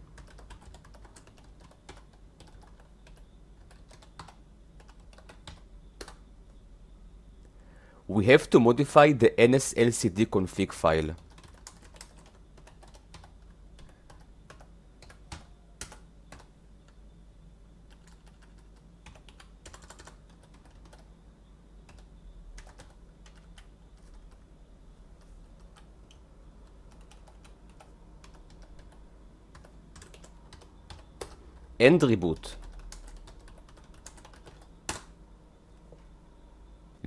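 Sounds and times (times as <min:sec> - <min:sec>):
low steady hum: 0:00.0 - 0:37.0
typing on a keyboard: 0:00.1 - 0:06.2, 0:11.2 - 0:17.0, 0:17.9 - 0:21.1, 0:21.9 - 0:24.4, 0:25.2 - 0:31.4, 0:32.4 - 0:35.1.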